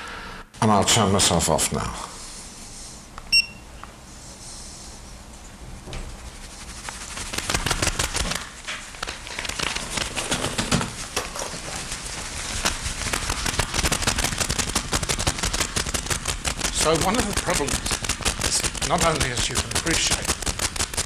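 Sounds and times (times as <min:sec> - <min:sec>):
rapid irregular clicking and rustling: 0:06.0 - 0:21.0.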